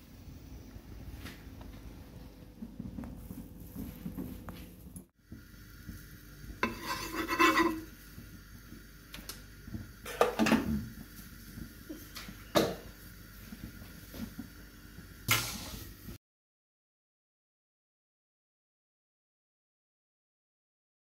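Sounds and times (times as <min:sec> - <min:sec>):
utensil scraping cooking pot: 0:06.6 - 0:08.0.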